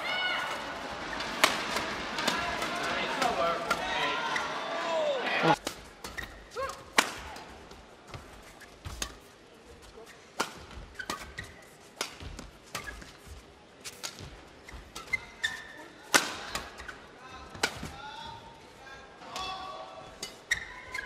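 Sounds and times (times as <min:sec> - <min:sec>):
rackets striking shuttlecock: 0:00.5 - 0:04.0
shoes squeaking on court: 0:08.1 - 0:16.0, 0:20.3 - 0:21.0.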